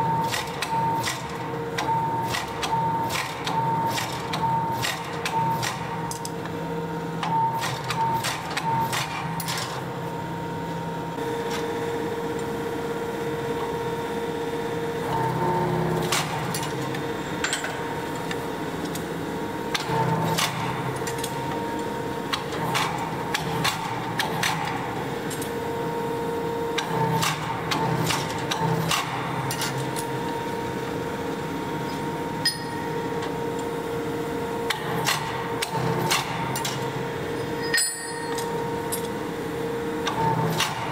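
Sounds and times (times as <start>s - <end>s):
forging press motor hum: 0.0s - 40.9s
metallic clanks of tongs and steel: 32.4s - 32.8s, 37.6s - 39.1s.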